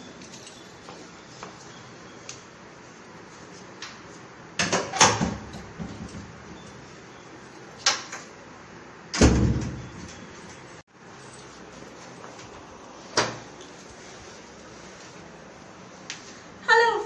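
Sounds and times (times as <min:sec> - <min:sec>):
door thudding shut: 0:09.1 - 0:09.9.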